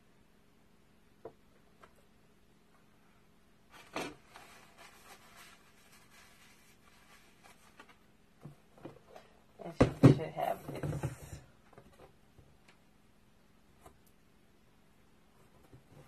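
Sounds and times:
hands rustling and rubbing: 0:03.8 - 0:08.1.

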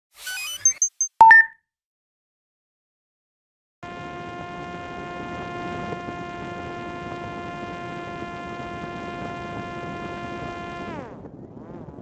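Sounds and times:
drone propeller buzzing whine: 0:03.8 - 0:12.0.

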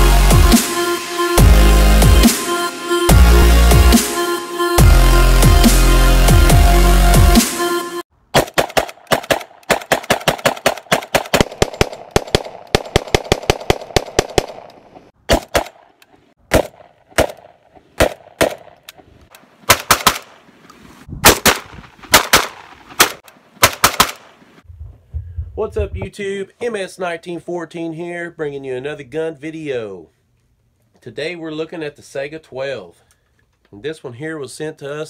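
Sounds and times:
shotgun firing: 0:08.3 - 0:15.9, 0:16.5 - 0:18.8, 0:19.7 - 0:20.4, 0:21.2 - 0:24.3.

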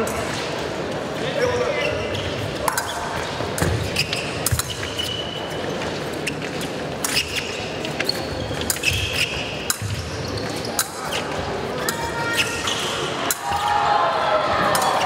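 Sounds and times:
shoes squeaking on floor: 0:01.2 - 0:13.2.

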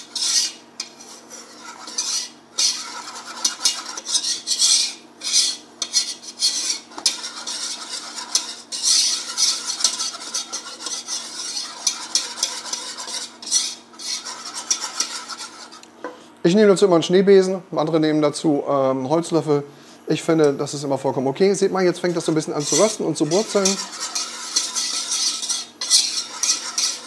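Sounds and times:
wire whisk scraping pot: 0:00.0 - 0:15.9, 0:22.0 - 0:27.0.

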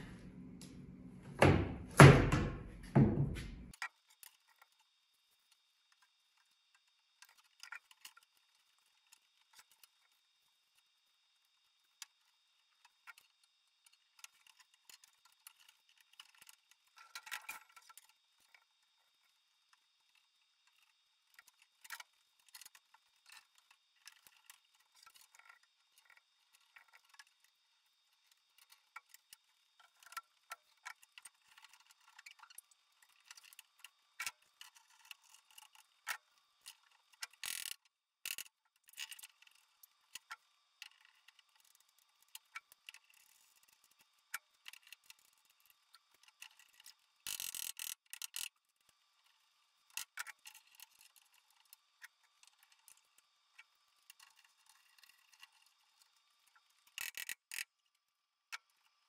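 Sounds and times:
knocks on workbench: 0:01.3 - 0:03.7.

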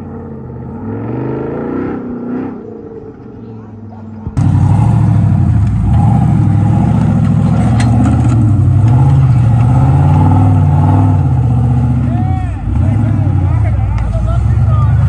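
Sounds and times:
truck engine at high revs: 0:00.0 - 0:15.0.

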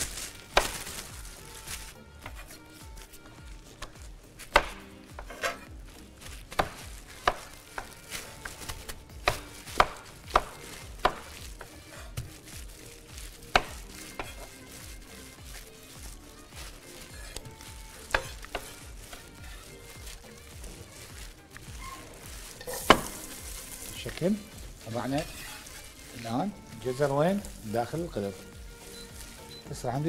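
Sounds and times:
knife chopping on cutting board: 0:00.5 - 0:00.8, 0:03.8 - 0:05.7, 0:06.5 - 0:12.3, 0:13.5 - 0:14.8, 0:17.0 - 0:19.8, 0:21.8 - 0:23.9.

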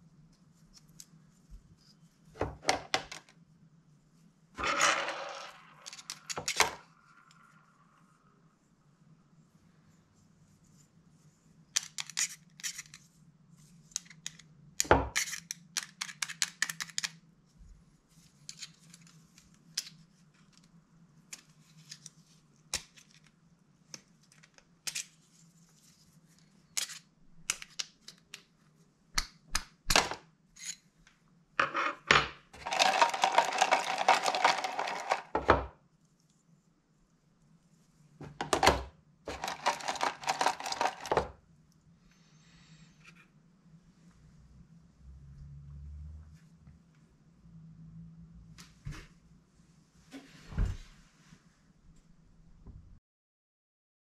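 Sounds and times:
small parts clicking and knocking: 0:04.6 - 0:06.8, 0:13.9 - 0:17.2, 0:32.6 - 0:35.6, 0:38.4 - 0:41.3.

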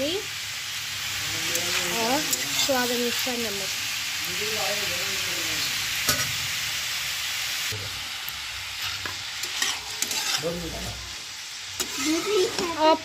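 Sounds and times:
vegetables sizzling in pan: 0:00.0 - 0:13.0
metal spatula scraping pan: 0:01.5 - 0:02.9, 0:08.8 - 0:11.0, 0:11.8 - 0:12.8.

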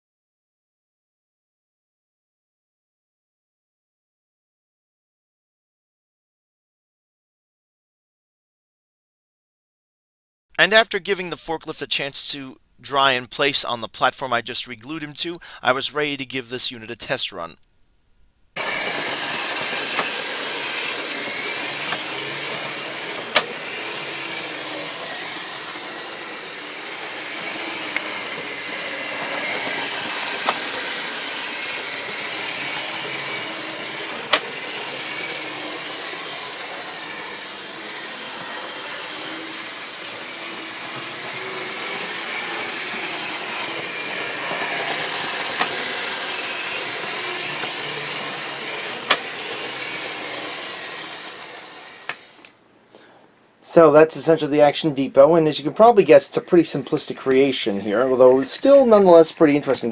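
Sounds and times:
model train whirring on rails: 0:18.6 - 0:52.5.

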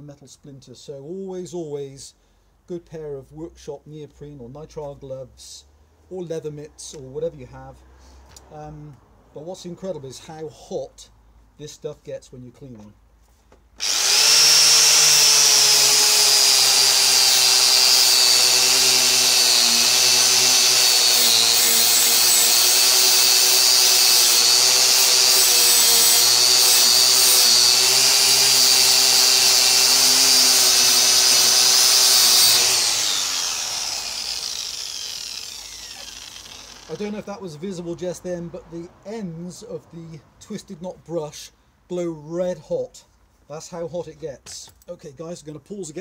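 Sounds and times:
angle grinder wire brush whining: 0:13.8 - 0:37.3.

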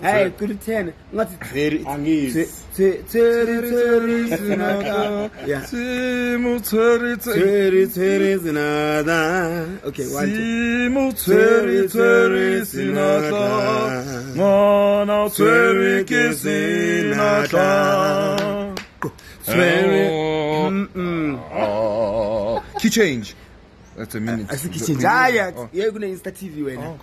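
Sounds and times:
two men singing unaccompanied: 0:02.2 - 0:22.8.

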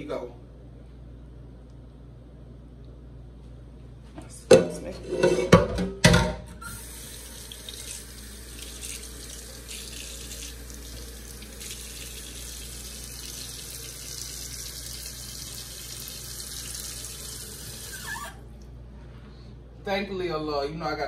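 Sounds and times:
faucet water pouring into sink: 0:06.6 - 0:18.3.

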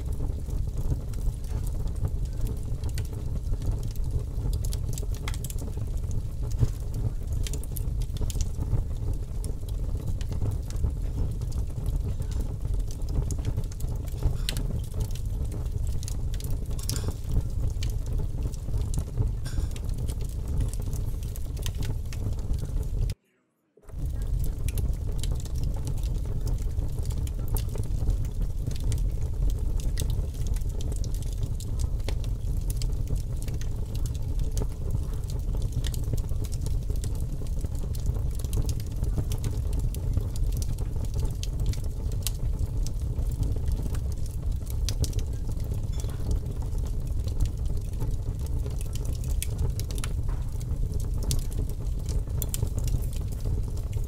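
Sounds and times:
fire crackling and popping: 0:00.0 - 0:23.2, 0:23.8 - 0:54.0
low rumble: 0:23.9 - 0:30.4.

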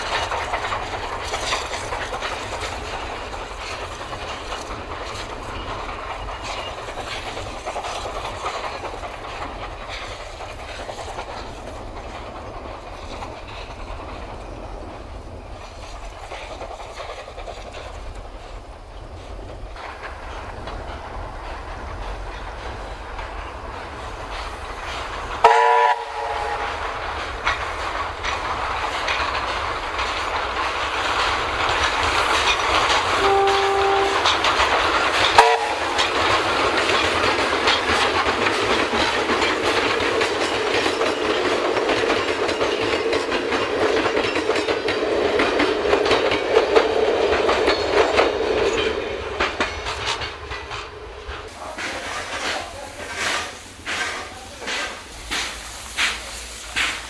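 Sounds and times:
steam locomotive passing: 0:00.0 - 0:57.0
steam whistle toots: 0:25.4 - 0:26.8, 0:33.2 - 0:34.4, 0:35.4 - 0:36.0.

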